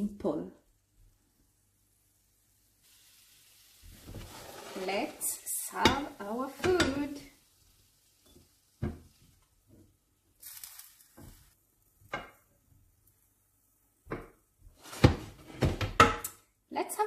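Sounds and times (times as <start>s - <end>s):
spatula scraping a frying pan: 3.8s - 7.2s.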